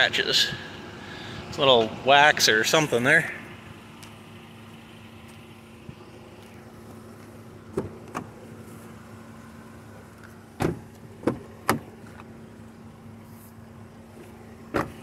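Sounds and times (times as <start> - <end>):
car engine idling: 0.0 - 15.0
car door clicks and clunks: 7.7 - 8.4, 10.2 - 12.3, 14.6 - 15.0.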